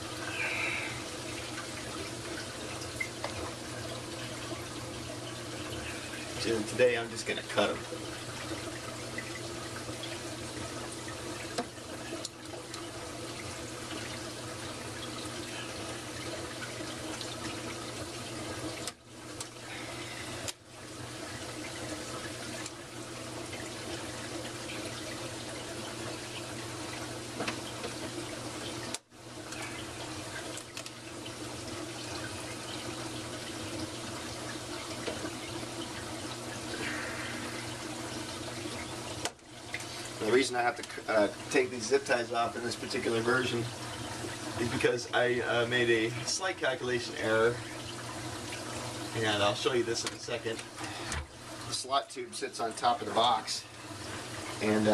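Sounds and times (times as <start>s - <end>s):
running water in plumbing: 0.0s - 54.9s.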